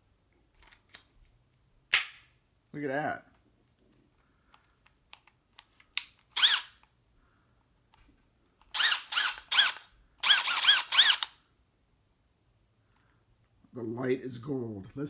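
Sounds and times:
power drill whirring: 6.3 - 6.8, 8.7 - 11.4.

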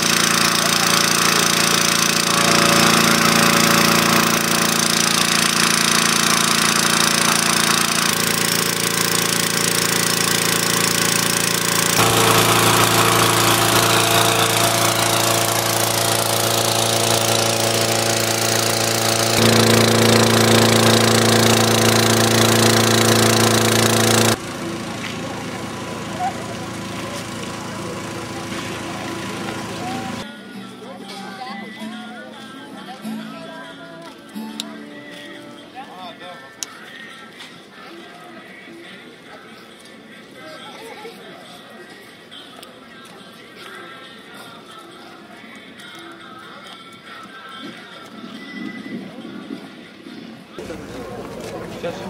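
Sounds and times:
small petrol engine running: 0.0 - 30.3, 50.6 - 52.0.

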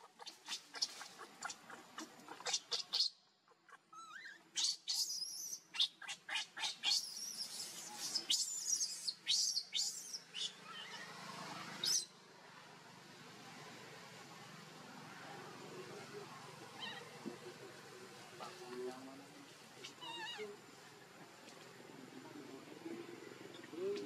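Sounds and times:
monkey screaming: 10.6 - 11.2.

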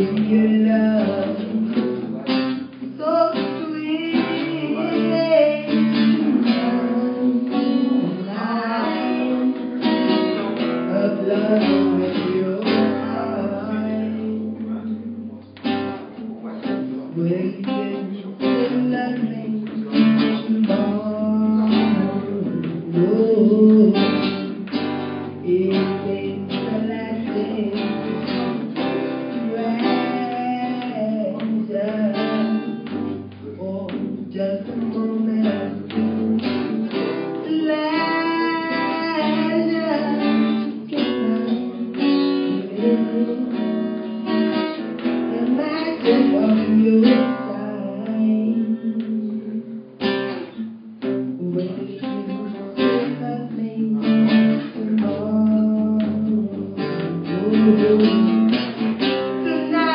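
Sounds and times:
woman singing into a microphone: 0.0 - 15.4, 16.9 - 59.9
acoustic guitar: 0.0 - 59.9.

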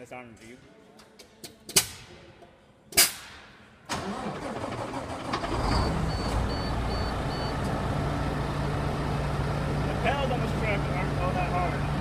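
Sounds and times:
diesel engine cranking and idling: 3.9 - 12.0
short high beeps: 6.1 - 7.6.

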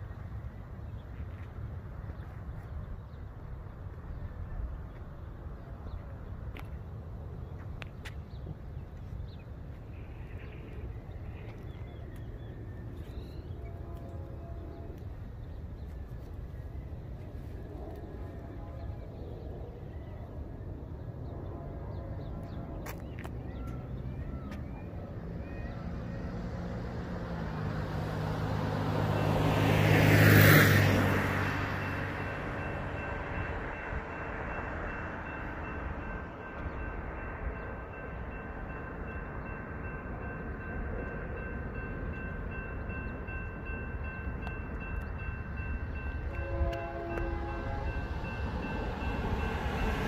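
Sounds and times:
distant train horn: 13.3 - 15.4, 17.8 - 19.3, 21.2 - 22.9, 44.4 - 50.0.

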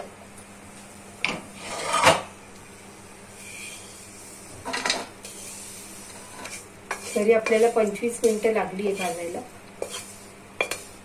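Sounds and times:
wooden spatula scraping metal pan: 1.6 - 2.2, 4.7 - 11.0.

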